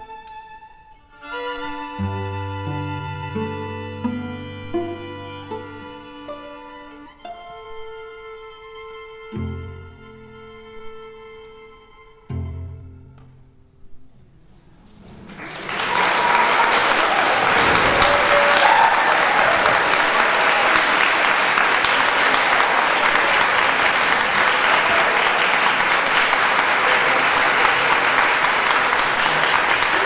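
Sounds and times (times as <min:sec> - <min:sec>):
audience applause: 0:14.9 - 0:30.0.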